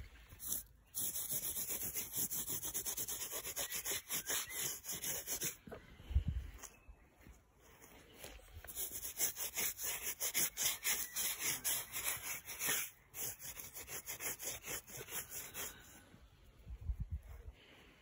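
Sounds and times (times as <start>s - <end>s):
rapid scratchy rubbing: 0.4s - 5.6s, 8.7s - 15.8s.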